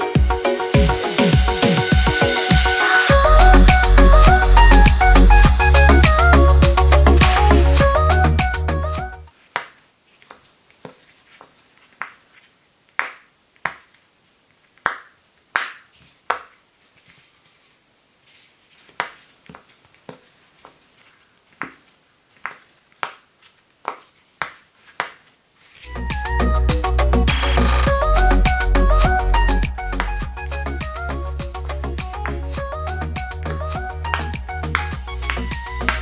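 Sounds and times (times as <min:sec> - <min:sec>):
background music: 0:00.0 - 0:09.3, 0:25.9 - 0:36.0.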